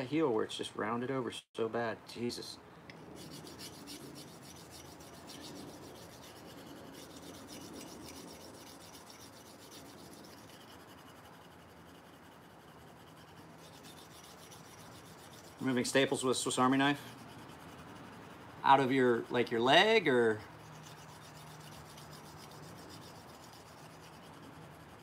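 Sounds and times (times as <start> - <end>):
knife scraping on sharpening stone: 3.2 - 15.8, 20.5 - 25.0.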